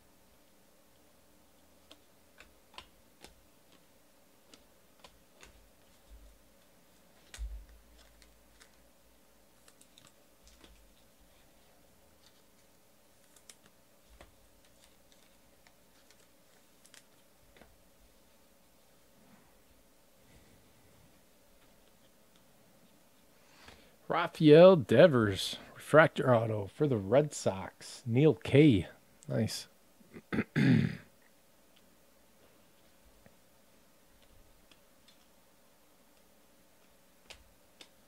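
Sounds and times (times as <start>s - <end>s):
trading cards clicking: 9.6s - 10.9s, 13.2s - 17.6s.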